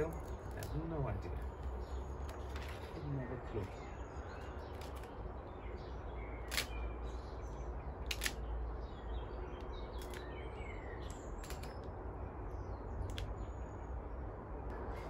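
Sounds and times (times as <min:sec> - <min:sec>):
small birds chirping: 0:00.0 - 0:15.0
steady low rumble: 0:00.0 - 0:15.0
sharp clicks: 0:13.0 - 0:13.4.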